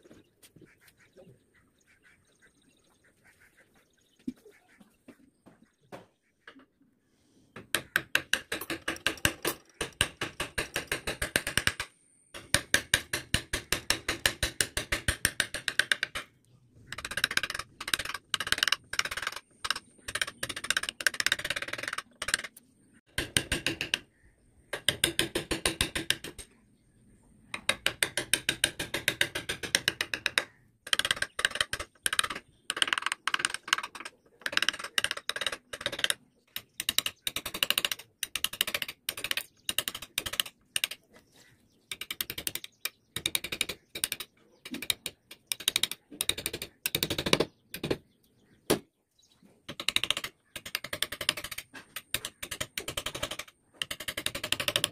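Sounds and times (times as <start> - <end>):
chisel ticking into softwood: 27.6 - 41.0.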